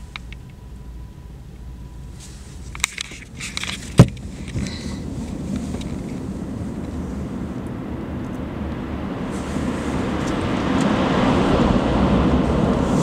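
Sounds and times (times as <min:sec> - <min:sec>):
car engine and tyre rumble: 0:00.0 - 0:13.0
rustling: 0:02.1 - 0:07.0.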